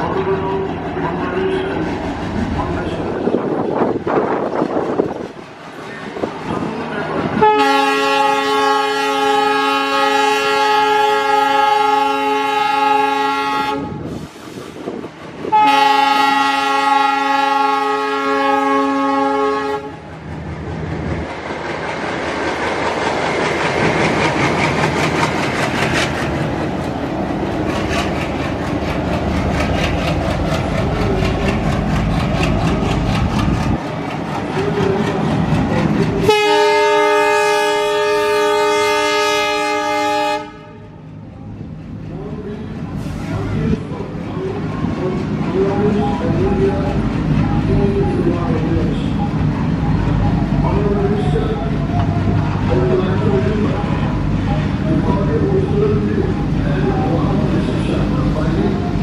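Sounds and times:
diesel locomotive engines running: 0.0 - 59.0
locomotive air horn blasts: 7.4 - 14.4, 15.5 - 20.0, 36.2 - 40.9
wheels clicking over rail joints: 20.1 - 36.2.

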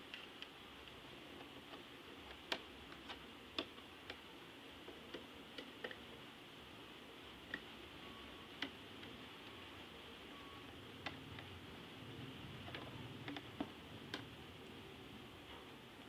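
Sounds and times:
faint steady hiss: 0.0 - 16.0.

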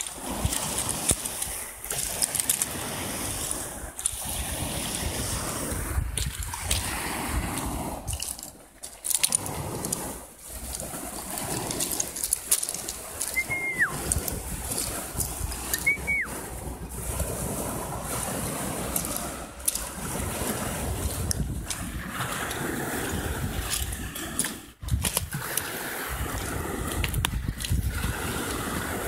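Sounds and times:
waves washing onto pebble beach: 0.0 - 29.0
whistled note sliding down: 13.3 - 14.0, 15.7 - 16.3.

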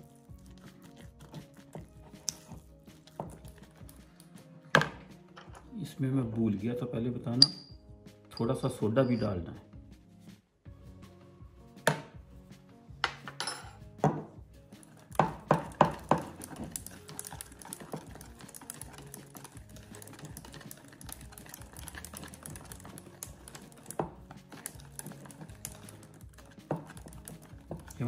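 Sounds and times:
whisk beating batter: 0.0 - 4.3, 14.4 - 28.0
background music: 0.0 - 28.0
whisk clinking on metal bowl: 14.9 - 28.0.

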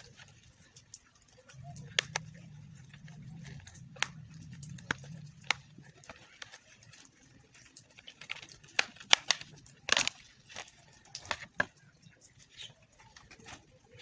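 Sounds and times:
plastic clips snapping: 8.0 - 11.8.

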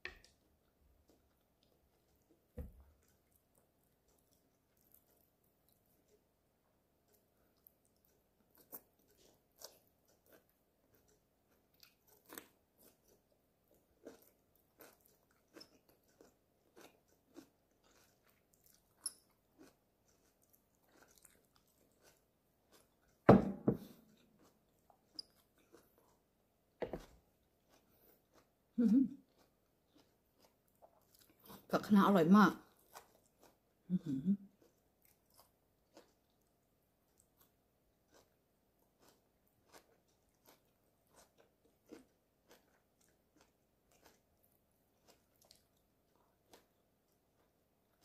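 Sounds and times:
chewing crunchy food: 0.0 - 23.2, 23.8 - 31.7, 32.5 - 48.0.

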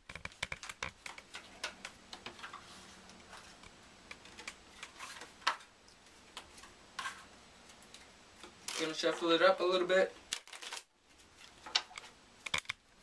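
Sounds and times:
playing cards clicking and tapping: 0.0 - 2.6.

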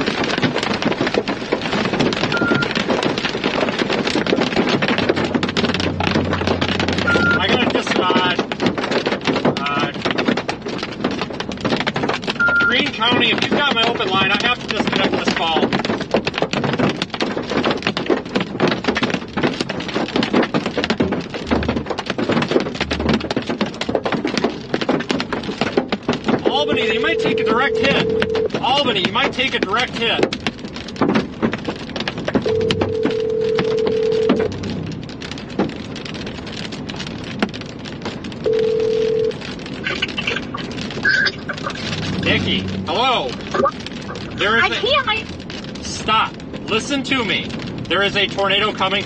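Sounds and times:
heavy rain on car windshield: 0.0 - 49.0
phone ringing tone beep: 2.3 - 2.7, 7.0 - 7.6, 12.4 - 12.8, 26.5 - 28.5, 32.5 - 34.5, 38.5 - 39.3.

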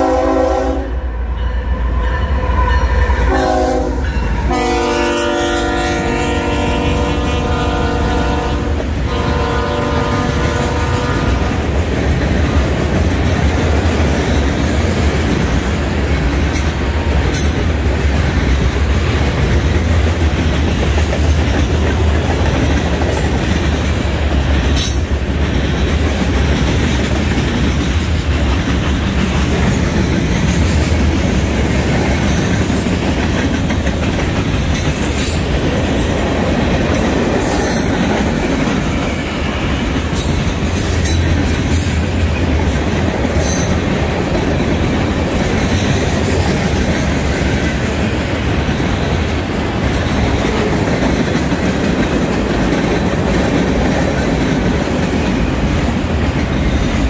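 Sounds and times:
locomotive horn: 0.0 - 11.6.

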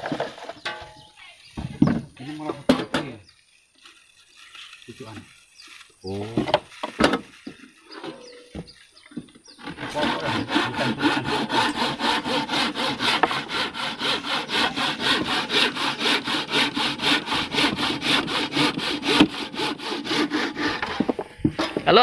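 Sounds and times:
hand saw cutting wood: 9.5 - 21.9.

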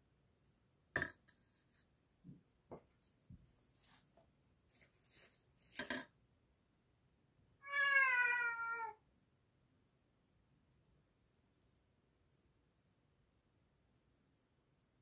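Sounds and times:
cat meowing: 7.6 - 9.0.

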